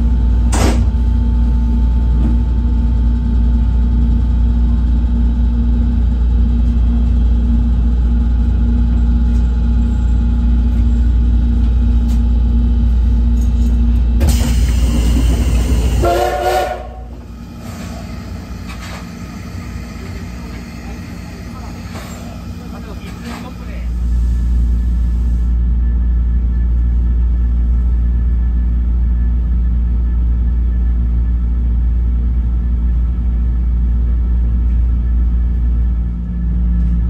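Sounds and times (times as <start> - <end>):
train low rumble and hum: 0.0 - 37.0
steam locomotive whistle: 16.0 - 17.1.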